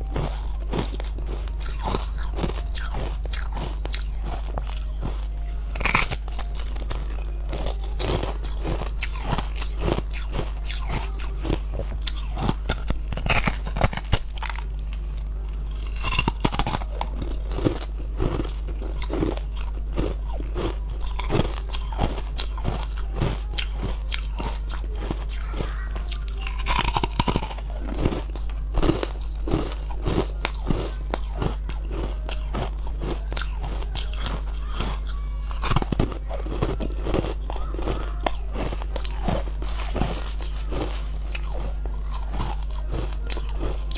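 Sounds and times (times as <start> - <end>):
chewing crunchy ice: 0.0 - 43.9
steady low hum: 0.0 - 43.9.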